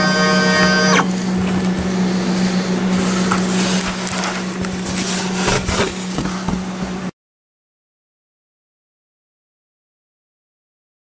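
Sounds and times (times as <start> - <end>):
stepper motor whine: 0.0 - 4.0
steady low hum: 0.0 - 7.1
scraping and rustling: 2.9 - 6.6.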